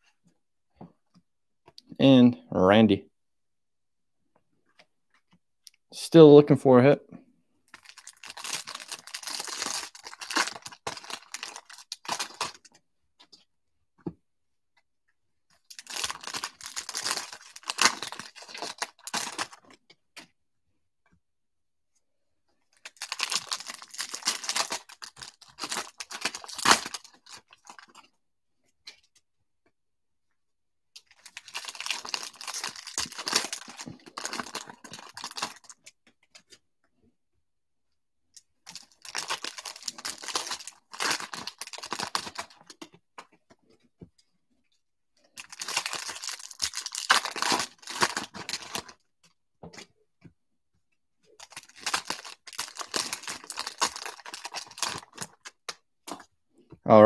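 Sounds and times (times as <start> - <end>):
card wrappers crinkling: 7.7 - 12.7, 15.6 - 19.8, 22.8 - 28.0, 31.0 - 35.9, 38.6 - 42.8, 45.2 - 49.0, 51.3 - 56.2.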